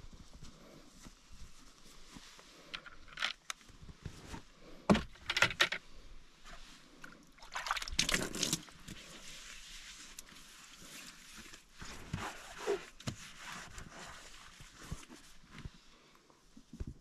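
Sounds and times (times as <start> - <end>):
water sloshing and splashing: 6.9 - 9.3.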